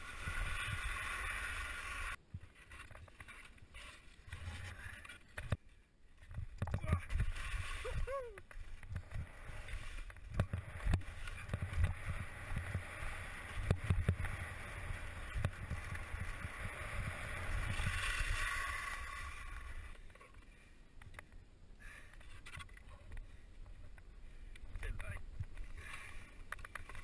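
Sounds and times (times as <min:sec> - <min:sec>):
skis scraping over snow: 0:00.0 - 0:05.2, 0:07.0 - 0:20.5.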